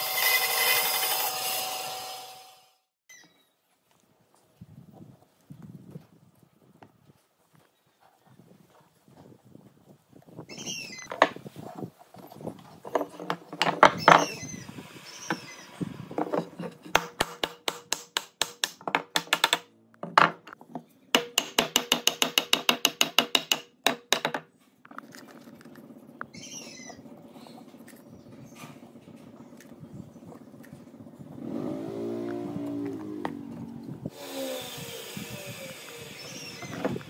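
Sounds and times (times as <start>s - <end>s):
wood scraping while handled: 11.1s - 14.3s, 16.1s - 17.0s, 24.6s - 30.8s.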